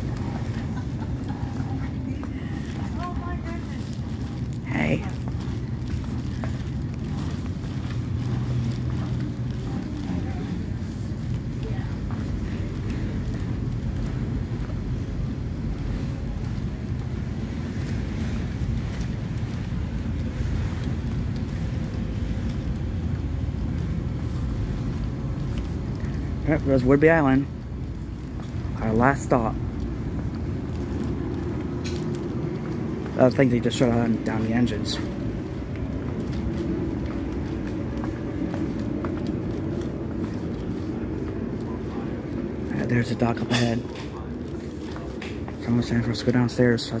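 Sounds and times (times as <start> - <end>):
ferry engine rumble: 0.0 - 47.0.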